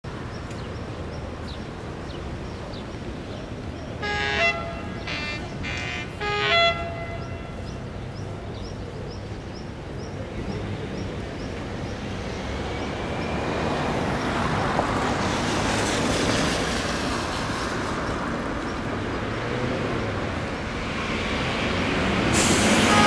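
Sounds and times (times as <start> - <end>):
locomotive horn short blasts: 4.0 - 7.6, 22.8 - 23.0.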